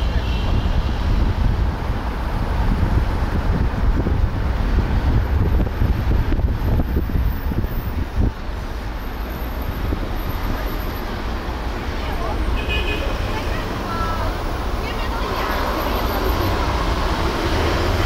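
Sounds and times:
wind buffeting microphone: 0:00.0 - 0:08.9
road and traffic noise: 0:00.0 - 0:18.0.

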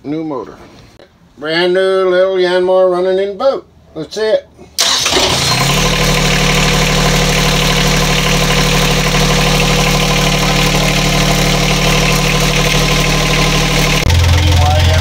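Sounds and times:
diesel engine idling: 0:04.8 - 0:15.0.

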